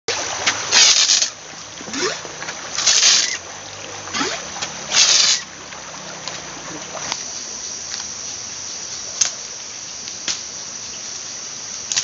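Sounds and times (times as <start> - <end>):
water gun hissing spray: 0.1 - 3.4, 4.1 - 5.5
plunger squeaking: 1.8 - 3.4, 4.1 - 5.5.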